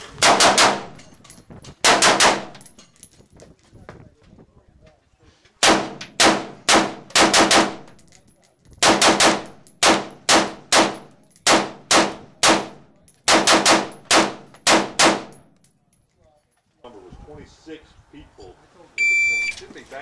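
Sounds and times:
rapid rifle gunshots: 0.2s - 0.9s, 1.8s - 2.5s, 5.6s - 7.9s, 8.8s - 15.3s.

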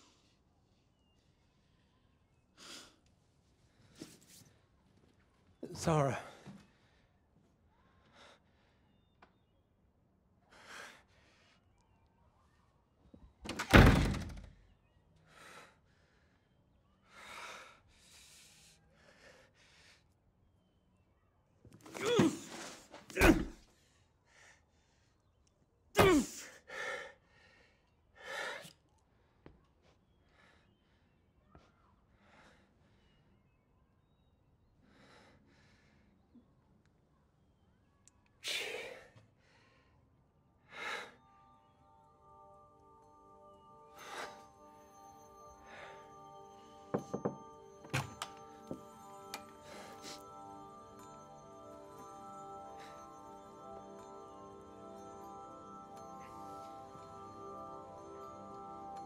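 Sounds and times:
person breathing heavily: 49.5s - 51.1s.

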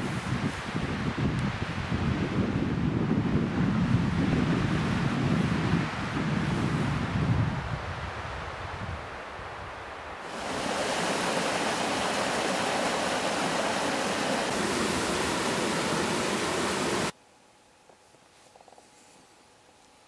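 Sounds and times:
stream and waterfall rushing: 10.2s - 17.2s.

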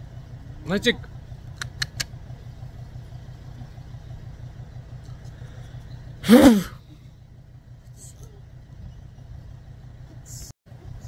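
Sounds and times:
engine idling: 0.0s - 11.0s
short vocal burst: 6.2s - 6.8s.

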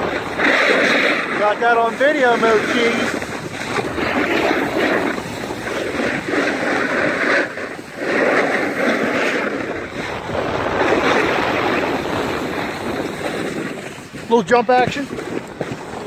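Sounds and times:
skis scraping over packed snow: 0.0s - 16.0s
wind buffeting microphone: 0.0s - 16.0s.

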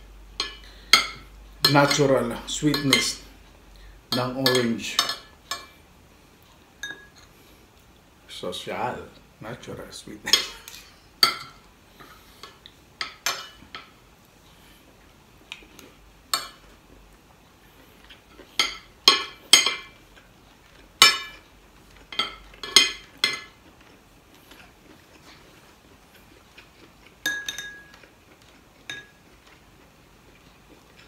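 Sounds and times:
cutlery clinking on ceramic plate: 2.7s - 3.2s, 4.1s - 5.8s, 6.8s - 7.3s, 10.3s - 13.9s, 18.6s - 20.0s, 21.0s - 21.4s, 22.1s - 23.6s, 27.2s - 28.1s, 28.8s - 29.2s.

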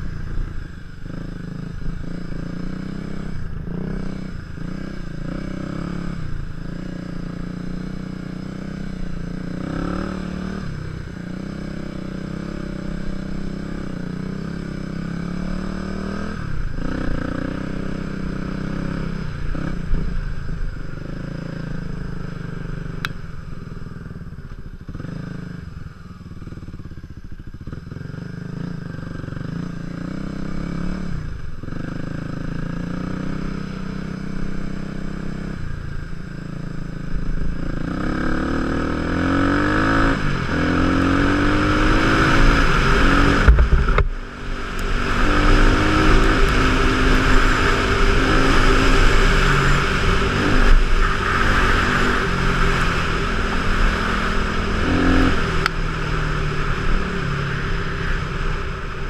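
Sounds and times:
motorcycle engine revving: 0.0s - 59.0s
wind noise: 39.3s - 59.0s.

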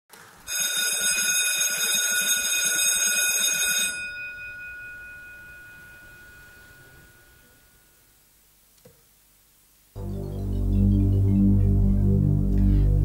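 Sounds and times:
electric bell ringing: 0.5s - 8.0s.

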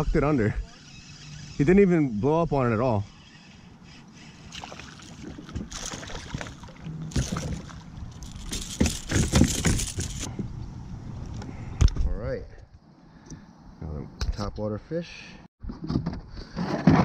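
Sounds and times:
fish splashing at the surface: 4.5s - 7.8s.

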